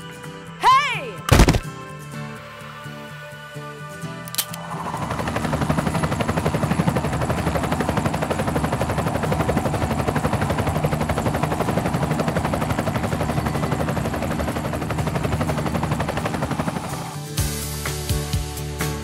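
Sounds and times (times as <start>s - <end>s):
toy helicopter rotor chop: 4.4s - 17.4s.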